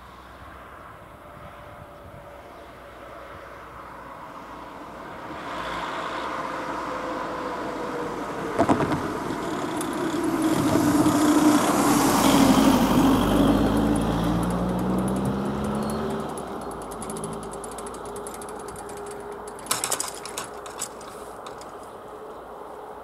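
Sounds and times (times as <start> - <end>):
van engine passing: 2.7 - 23.0
wheels knocking over rails: 8.5 - 12.7, 13.4 - 21.9
crossing barriers ratchet clicking: 8.6 - 21.9.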